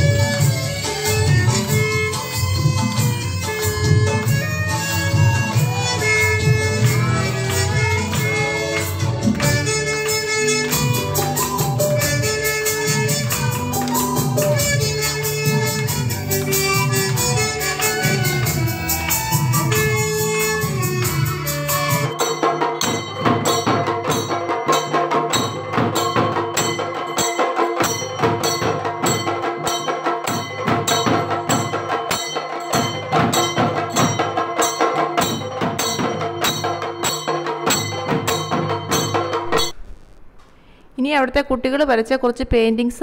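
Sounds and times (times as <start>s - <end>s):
violin melody: 0.0s - 22.2s
hand cymbals clashing: 0.0s - 40.0s
drums playing fast rhythm: 0.0s - 40.4s.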